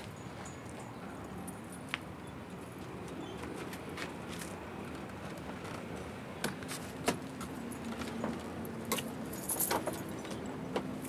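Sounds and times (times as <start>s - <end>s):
keys jingling: 8.9s - 10.2s.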